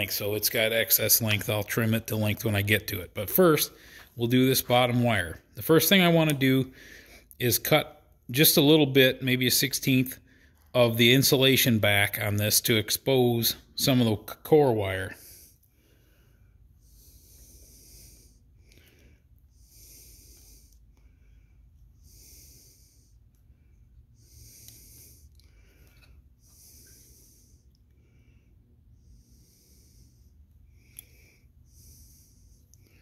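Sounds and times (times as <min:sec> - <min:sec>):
slow breathing: 0:03.6 - 0:04.2, 0:06.7 - 0:07.4, 0:15.1 - 0:33.0.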